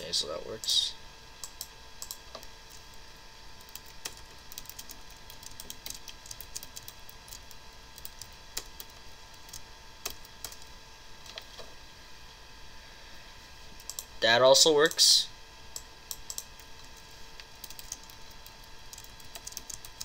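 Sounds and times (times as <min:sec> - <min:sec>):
computer whine: 0:00.0 - 0:20.0.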